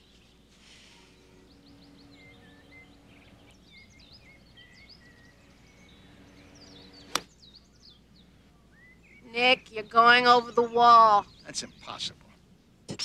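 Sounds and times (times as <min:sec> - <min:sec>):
birds chirping: 0:00.0 - 0:13.0
golf club striking ball: 0:06.3 - 0:07.4.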